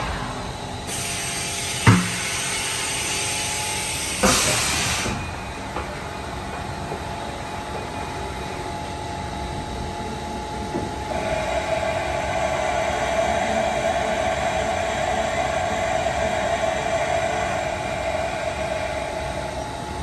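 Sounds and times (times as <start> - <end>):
air hiss blast: 0.0 - 5.2
machine humming: 0.0 - 20.0.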